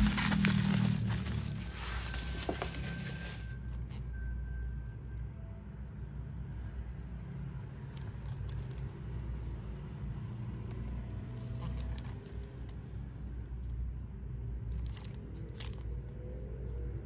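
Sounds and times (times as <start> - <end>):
steady low rumble: 0.0 - 3.6.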